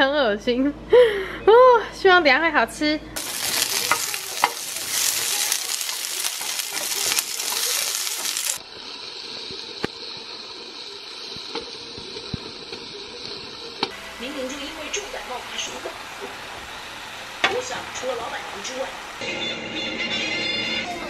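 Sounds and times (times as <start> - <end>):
vegetables sizzling in oil: 3.2 - 19.2.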